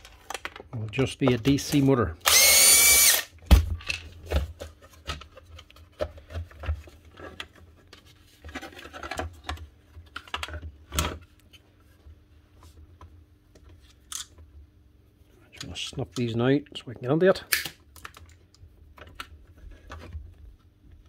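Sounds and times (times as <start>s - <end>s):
plastic parts clicking and knocking: 0.0s - 2.4s, 8.4s - 11.3s.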